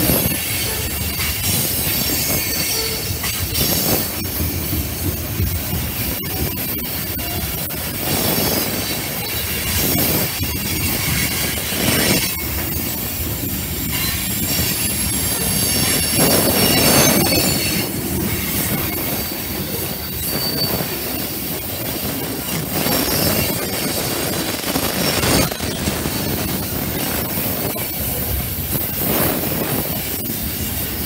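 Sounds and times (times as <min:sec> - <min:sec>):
train wheels rumbling and clattering: 0:00.0 - 0:31.0
high-pitched wheel squeal: 0:00.2 - 0:04.4, 0:13.8 - 0:21.5.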